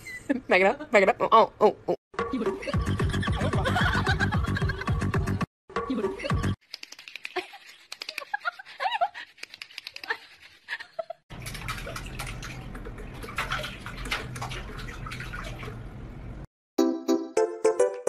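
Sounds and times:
water splashing in metal sink: 11.3 - 16.4.

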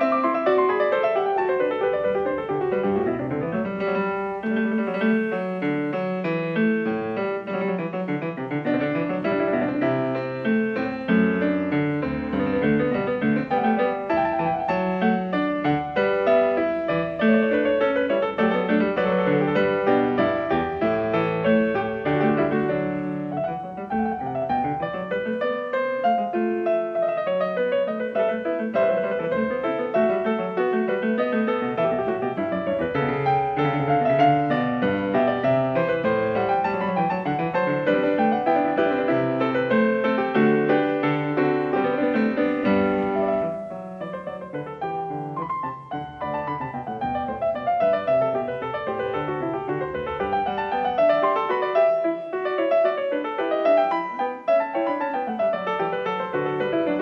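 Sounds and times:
piano music: 0.0 - 57.0.

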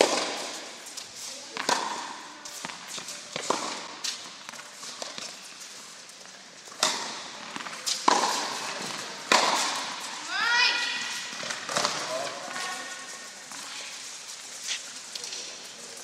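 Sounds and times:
tennis balls bouncing on court: 0.0 - 0.6, 1.5 - 5.5, 6.2 - 10.4, 11.1 - 12.7
tennis balls struck by rackets: 0.0 - 0.7, 1.5 - 5.4, 6.7 - 10.2, 11.3 - 12.6
footsteps: 0.0 - 16.0.

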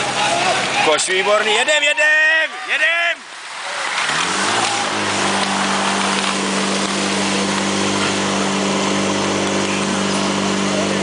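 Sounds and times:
pump engine at full throttle: 3.4 - 11.0.

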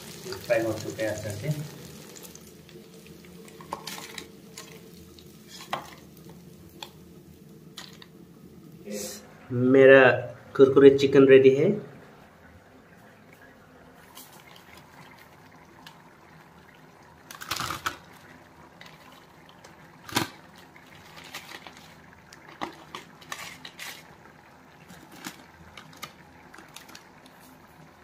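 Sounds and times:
foil packet crinkling: 17.3 - 18.1, 18.9 - 24.2, 24.9 - 27.4.

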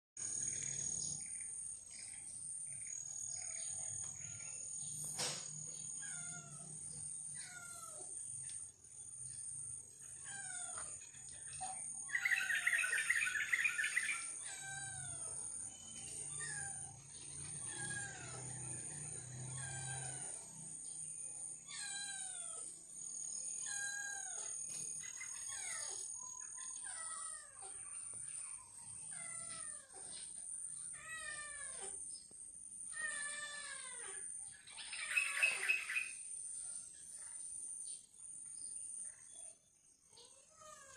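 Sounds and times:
high-pitched insect drone: 0.2 - 10.1
small birds chirping: 0.2 - 40.9.

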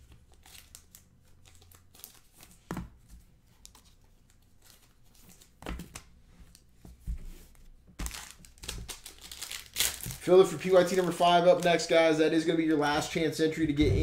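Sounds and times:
cards and wrappers crinkling: 0.2 - 2.6, 8.0 - 12.0.

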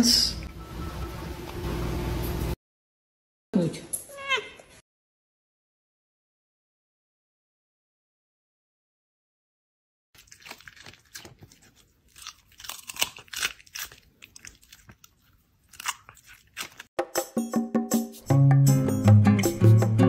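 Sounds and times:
fox chewing and crunching food: 10.2 - 16.9.

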